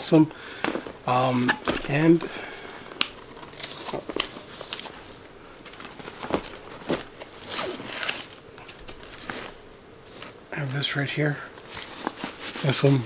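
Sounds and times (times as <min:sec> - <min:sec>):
fabric rustling: 0:00.6 - 0:10.9.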